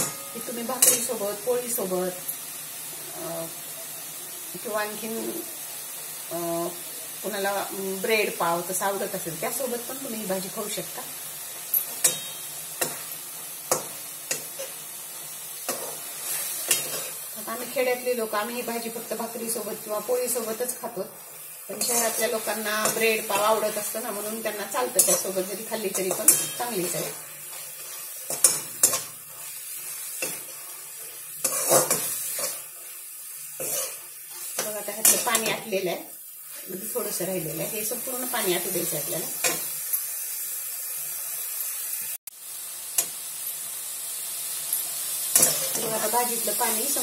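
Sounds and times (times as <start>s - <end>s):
faint sizzle: 0.0s - 47.0s
metal spatula scraping a pan: 15.6s - 17.4s, 21.7s - 35.7s.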